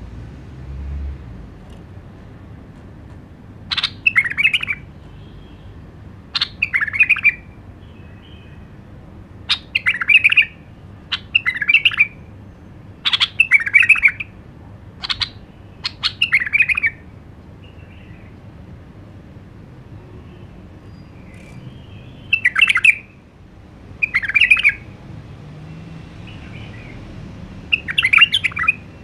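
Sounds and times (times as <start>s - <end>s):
bird singing warbling phrases: 3.7s - 5.6s, 6.2s - 8.7s, 9.4s - 14.4s, 15.0s - 18.5s, 20.0s - 23.2s, 24.0s - 25.0s, 26.2s - 27.0s, 27.6s - 29.0s.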